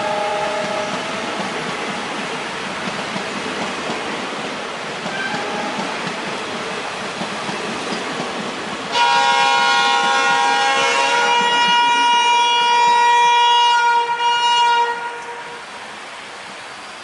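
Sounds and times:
loud diesel locomotive horn: 0:00.0 - 0:01.4, 0:05.1 - 0:05.9, 0:08.9 - 0:15.8
railway coaches rolling past: 0:00.0 - 0:17.0
faint distant horn: 0:08.9 - 0:15.7.

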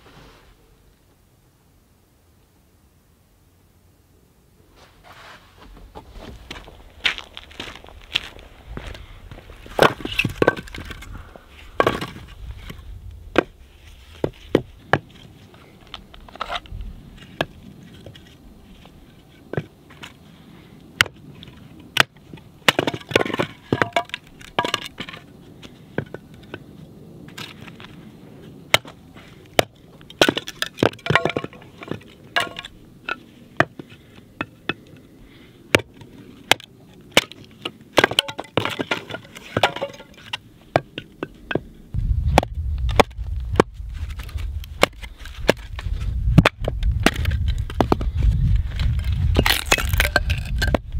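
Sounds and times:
wood splitting knocks and cracks: 0:09.6 - 0:11.2, 0:11.8 - 0:13.5, 0:22.0 - 0:25.2, 0:28.7 - 0:32.7, 0:35.7 - 0:37.4, 0:38.0 - 0:41.6, 0:42.4 - 0:50.9
firewood clattering onto ground: 0:09.6 - 0:13.5, 0:21.0 - 0:25.2, 0:29.6 - 0:33.8, 0:35.7 - 0:41.6, 0:42.4 - 0:50.8.

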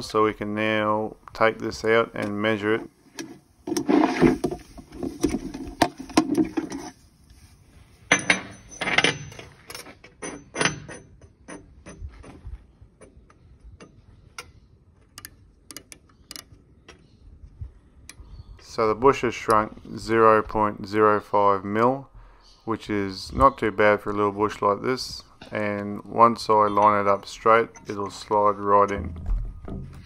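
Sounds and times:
metal knocks and scrapes: 0:03.2 - 0:07.0, 0:08.1 - 0:14.0, 0:26.7 - 0:30.0
micrometer clicking: 0:13.3 - 0:17.1.

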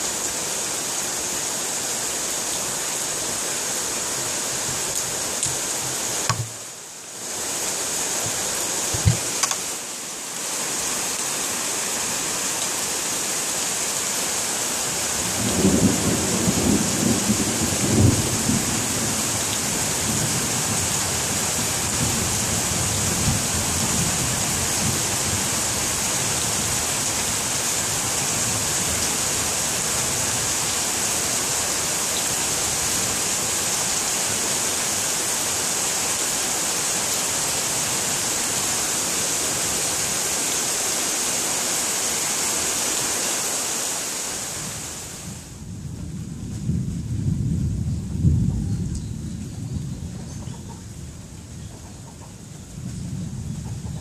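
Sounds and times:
steady rain: 0:00.0 - 0:54.0
thunder rumble: 0:15.2 - 0:19.3, 0:45.4 - 0:51.6.

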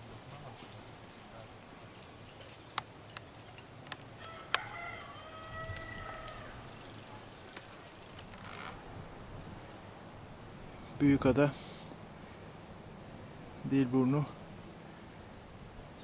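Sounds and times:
rooster crowing: 0:04.2 - 0:07.0.

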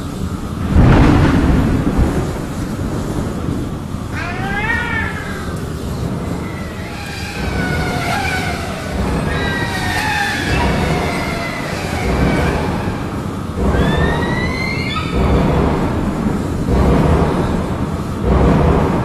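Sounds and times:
steady low rumble: 0:00.0 - 0:19.0
wailing siren-like tones: 0:06.4 - 0:15.4.

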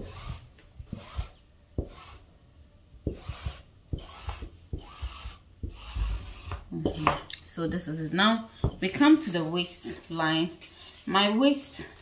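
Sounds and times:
marking tool scratching fabric: 0:00.0 - 0:02.3, 0:03.1 - 0:06.6.

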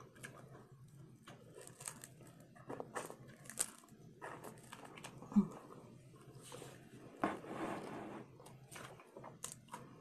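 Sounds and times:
chewing crunchy taco shells: 0:00.0 - 0:05.5.

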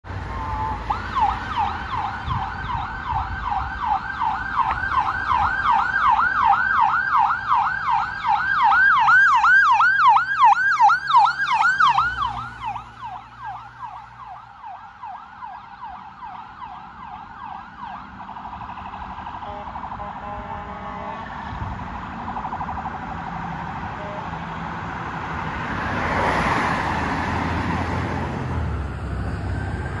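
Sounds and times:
road traffic noise: 0:00.0 - 0:30.0
vehicle passing: 0:00.1 - 0:17.0, 0:18.0 - 0:30.0
ambulance siren wailing: 0:00.1 - 0:25.0, 0:26.0 - 0:30.0.

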